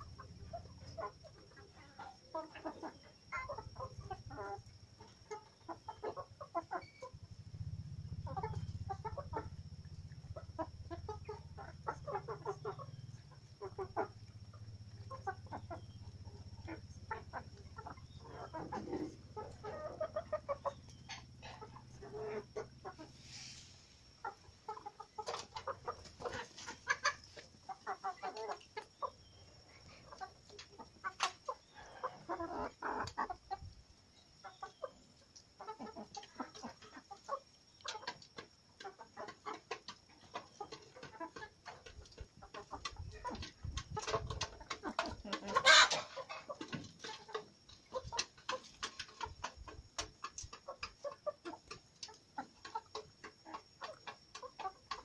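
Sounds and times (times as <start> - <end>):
beaks pecking the ground: 0.0 - 55.0
chickens clucking softly: 0.0 - 55.0.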